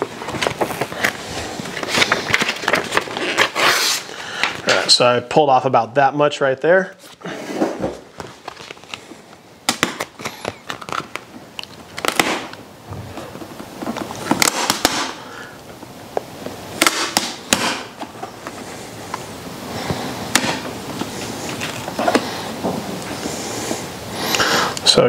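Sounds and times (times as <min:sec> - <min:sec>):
vinyl decal crackling and rustling: 0:00.0 - 0:05.1, 0:06.9 - 0:25.0.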